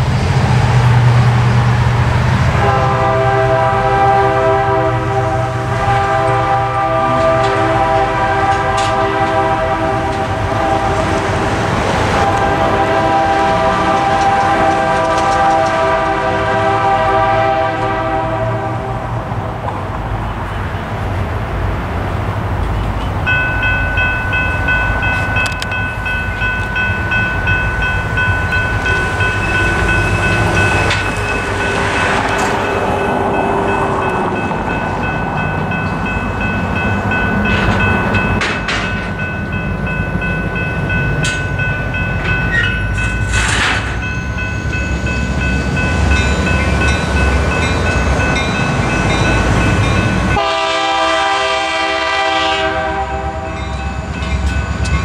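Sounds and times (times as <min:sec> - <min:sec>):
passing road traffic: 0:00.0 - 0:55.0
train air horn: 0:02.5 - 0:11.4, 0:12.0 - 0:19.2, 0:50.3 - 0:54.0
crossing bell ringing: 0:22.6 - 0:55.0.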